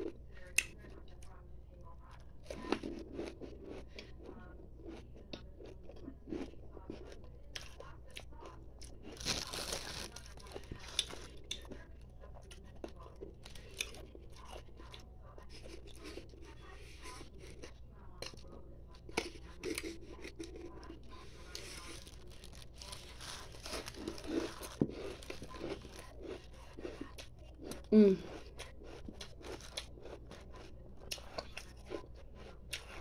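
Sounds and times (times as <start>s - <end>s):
ice being crunched: 9.2s - 10.2s.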